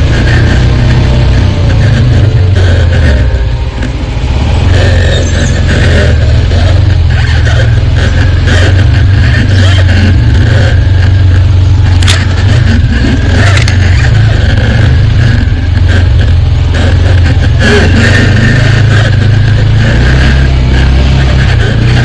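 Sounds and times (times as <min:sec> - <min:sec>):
deep engine drone: 0:00.0 - 0:22.0.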